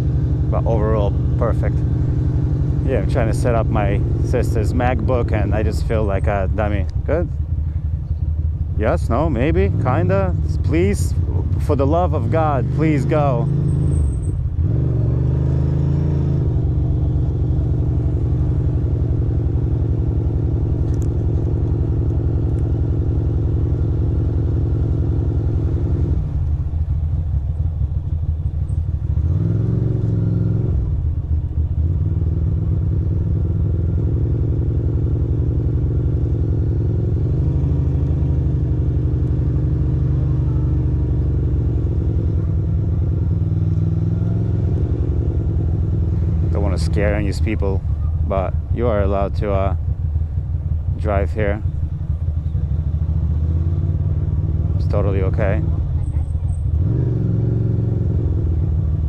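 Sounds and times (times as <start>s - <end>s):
motorcycle engine idling: 0.0s - 11.8s, 16.6s - 29.4s, 45.1s - 56.8s.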